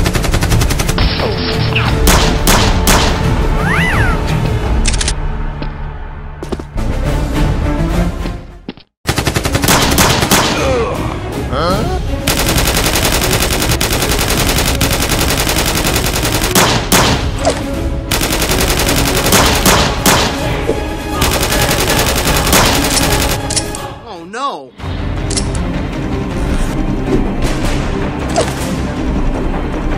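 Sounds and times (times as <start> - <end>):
background music: 0.0 - 29.9
machine-gun fire: 2.0 - 3.2, 9.0 - 10.6, 12.3 - 17.4, 18.1 - 20.4, 21.2 - 23.5.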